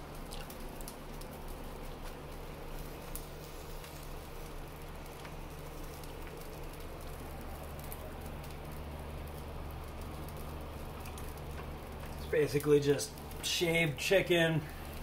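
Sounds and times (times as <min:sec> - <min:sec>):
low steady hum: 0:00.0 - 0:15.0
sandwich sizzling on a griddle: 0:00.0 - 0:15.0.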